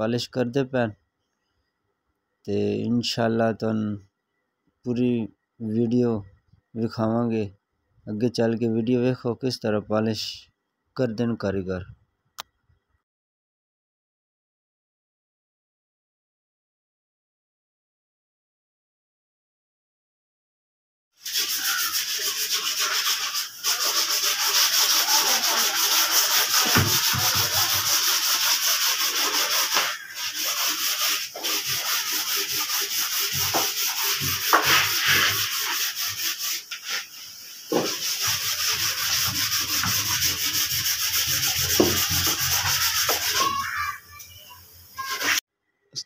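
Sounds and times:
sandpaper rubbing on wood: 21.2 - 44.2, 44.9 - 45.4.

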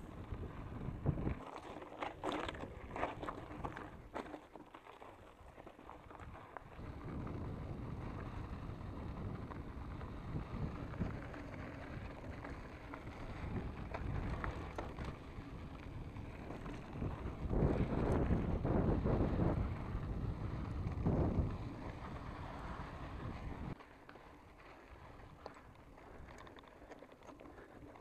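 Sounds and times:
wind buffeting microphone: 0.0 - 1.5, 6.1 - 23.8
bike rattles and clicks: 0.0 - 28.0
bike tyres rolling on gravel: 0.0 - 28.0.

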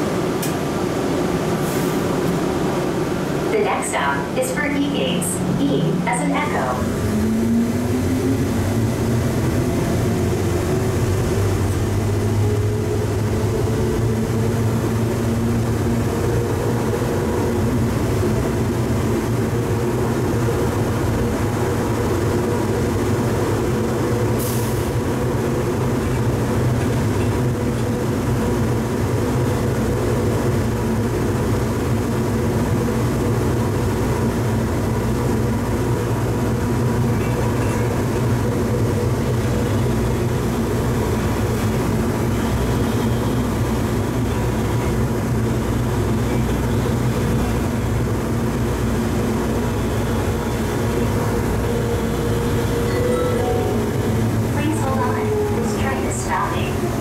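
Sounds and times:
train drive whine: 0.0 - 57.0
train running rumble: 0.0 - 57.0.

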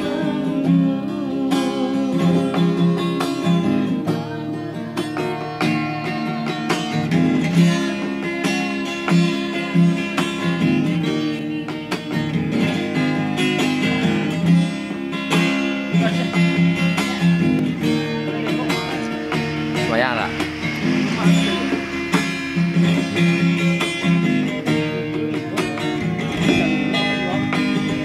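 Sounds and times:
acoustic guitar chord strokes: 0.0 - 28.0.

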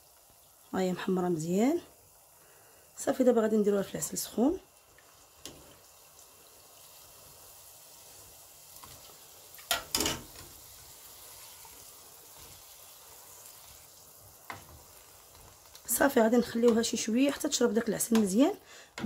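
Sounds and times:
frying oil sizzling: 0.0 - 19.0.

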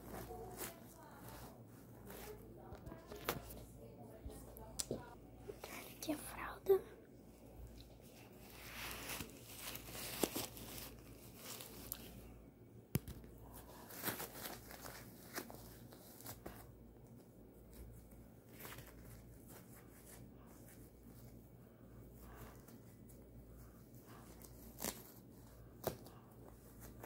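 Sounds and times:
plastic diaper rustling: 0.0 - 3.6, 7.6 - 12.3, 13.0 - 21.4, 22.2 - 27.0.

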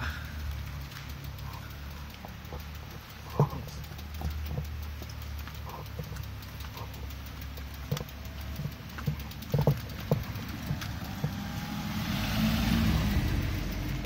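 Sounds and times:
bicycle rattling over concrete: 0.0 - 14.0
bicycle rolling on road: 0.0 - 14.0.

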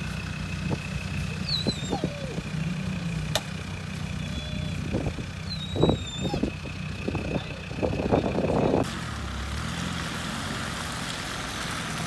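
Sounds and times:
vehicle engine rumble: 0.0 - 12.0
birds chirping: 0.8 - 8.7.

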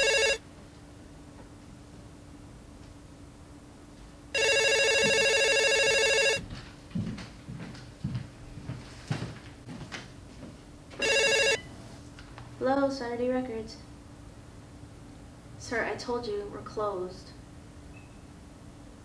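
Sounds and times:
telephone ringing: 0.0 - 0.4, 4.4 - 6.4, 11.0 - 11.8
soft footsteps: 6.4 - 10.7.

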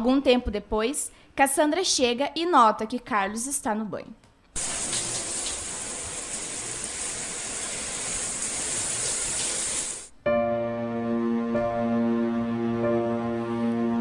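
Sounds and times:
shower water spraying: 4.6 - 10.1
soft sustained music: 10.2 - 14.0.

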